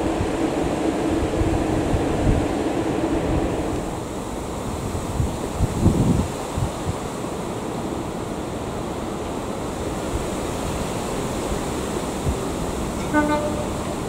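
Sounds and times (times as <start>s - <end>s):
diesel train rumble: 0.0s - 14.0s
wind on microphone: 4.8s - 7.0s.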